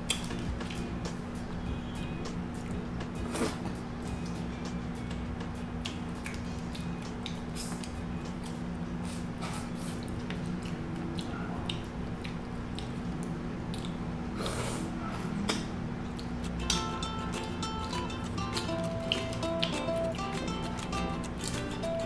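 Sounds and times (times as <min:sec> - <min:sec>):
wet chewing of seafood: 0:09.4 - 0:14.9.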